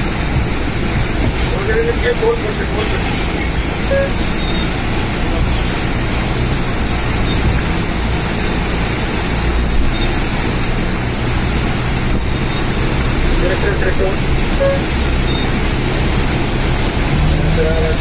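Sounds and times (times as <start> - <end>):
low engine hum: 0.0 - 18.0
rushing water noise: 0.0 - 18.0.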